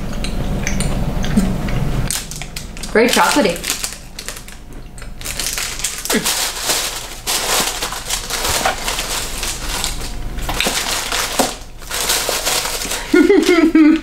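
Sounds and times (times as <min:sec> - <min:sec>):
plastic wrappers crinkling: 0:02.1 - 0:14.0.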